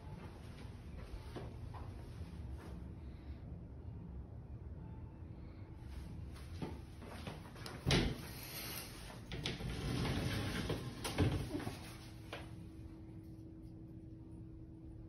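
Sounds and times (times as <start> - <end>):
door rattling slide: 7.9 - 11.9.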